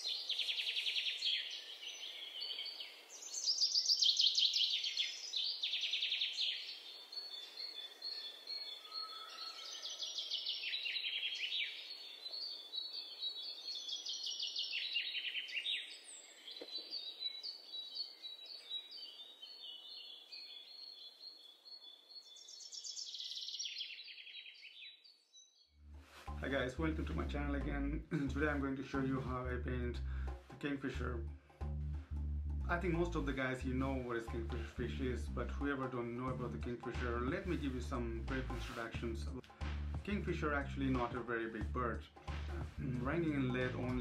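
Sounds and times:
birds chirping trills: 0.0 - 25.8.

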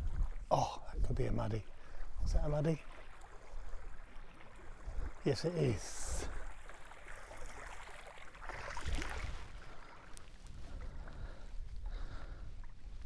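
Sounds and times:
wind rumble on microphone: 0.0 - 1.4, 2.0 - 2.6, 8.5 - 13.0
creek water sloshing and splashing: 0.0 - 13.0.

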